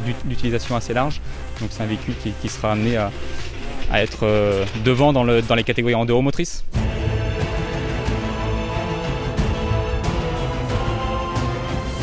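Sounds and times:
sustained tones over pulsing bass: 6.8s - 12.0s.

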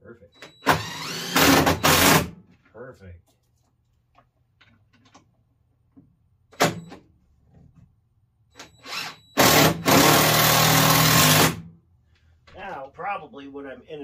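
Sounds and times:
power drill driving a screw: 0.5s - 2.3s, 8.6s - 11.6s.

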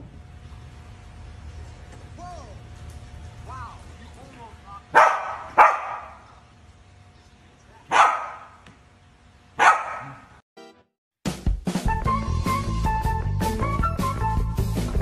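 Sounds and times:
dog barking: 4.9s - 6.3s, 7.9s - 8.6s, 9.6s - 10.3s
music: 10.6s - 15.0s.

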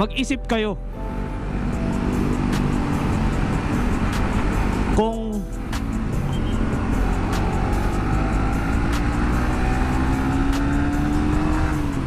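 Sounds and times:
low riding rumble: 0.8s - 9.4s
motorcycle engine accelerating: 1.1s - 12.0s.

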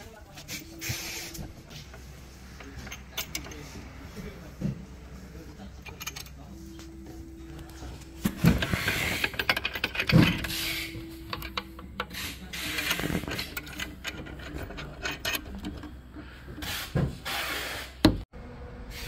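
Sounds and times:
small metal clicks and rubbing: 7.6s - 16.8s.

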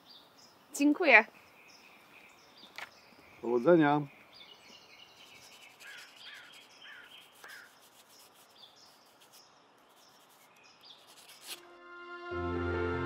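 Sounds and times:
pencil scratching on paper: 5.2s - 11.6s.

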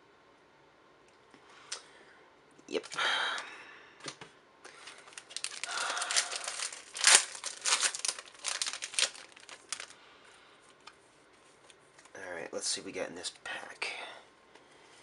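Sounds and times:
foil wrapper crinkling and tearing: 4.7s - 10.0s.

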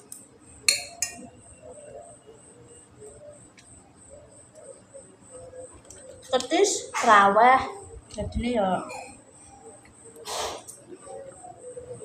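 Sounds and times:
metal spoon clinking on plate: 0.7s - 1.3s.

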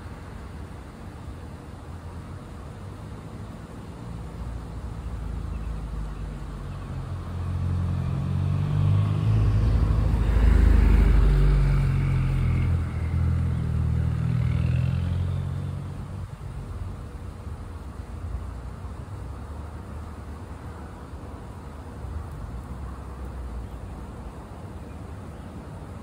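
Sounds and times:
vehicle engine driving past: 5.2s - 16.9s.

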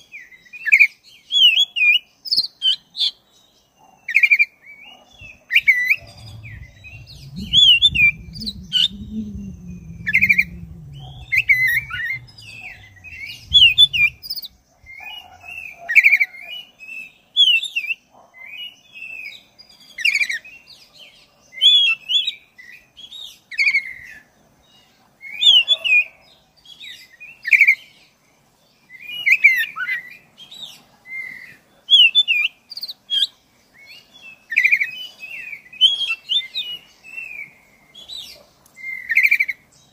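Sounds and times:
low rumble: 5.2s - 15.0s
bird singing whistled phrases: 5.6s - 14.5s.

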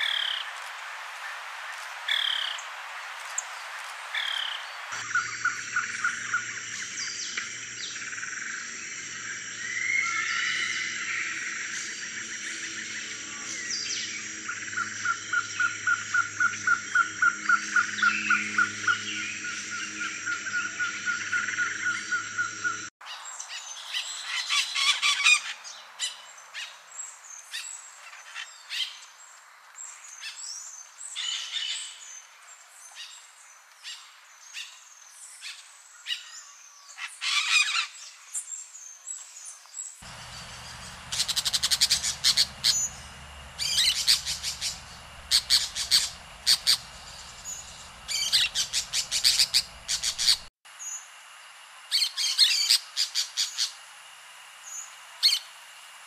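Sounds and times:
parakeets chirping and squawking: 40.0s - 50.5s.

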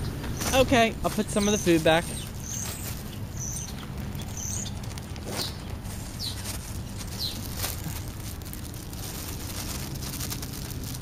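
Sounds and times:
high falling bird chirps: 0.0s - 7.8s
steady low rumble: 0.0s - 11.0s
plastic bags rustling: 0.4s - 11.0s.

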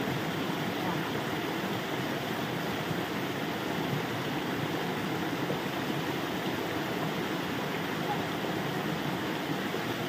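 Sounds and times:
stream and small waterfall: 0.0s - 10.0s.

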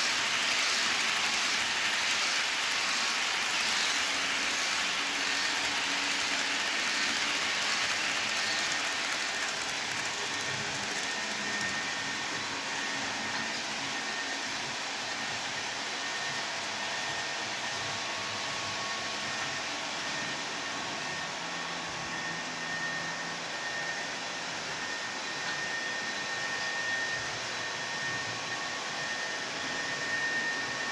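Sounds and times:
model train cars rolling on track: 0.0s - 12.4s.

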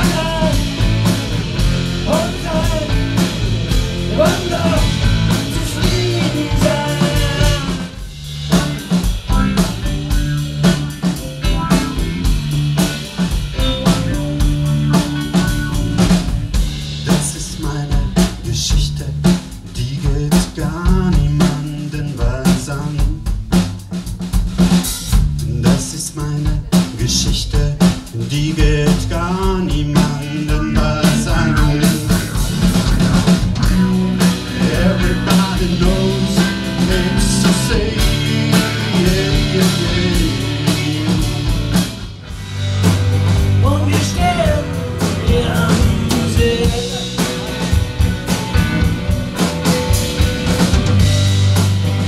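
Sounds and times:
man singing into microphone: 0.0s - 0.7s, 2.0s - 3.2s, 4.1s - 7.9s, 17.1s - 23.2s, 25.5s - 32.4s, 34.5s - 41.7s, 43.6s - 47.2s
electric guitars: 0.0s - 16.8s, 28.8s - 52.0s
drum kit with rimshots: 0.0s - 52.0s.

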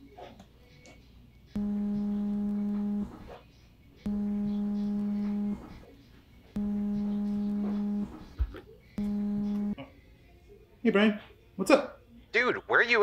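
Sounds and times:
phone vibrating on glass: 1.6s - 3.2s, 4.1s - 5.8s, 6.6s - 8.3s, 9.0s - 9.8s.

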